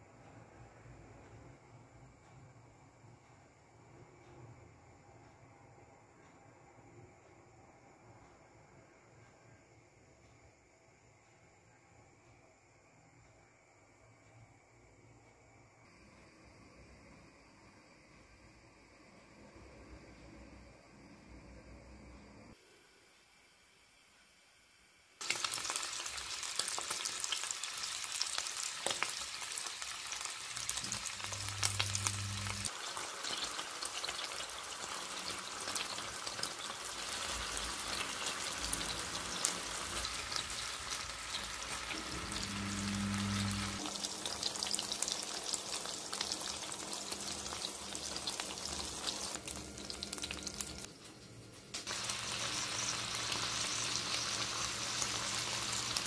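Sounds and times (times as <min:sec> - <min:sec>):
bacon frying: 0:25.2 - 0:50.9, 0:51.8 - 0:56.0
sausages sizzling in hot oil: 0:25.2 - 0:50.9, 0:51.8 - 0:56.0.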